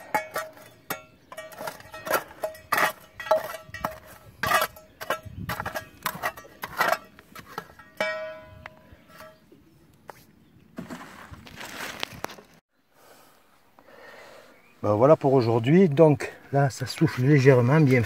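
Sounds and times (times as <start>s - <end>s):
metallic ringing: 0.0s - 9.4s
tool knocking and scraping on rock: 0.0s - 9.4s.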